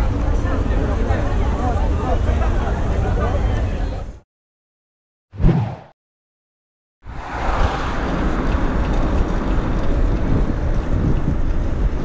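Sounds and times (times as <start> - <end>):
bicycle road rumble: 7.0 - 12.0
wind rushing over microphone: 7.0 - 12.0.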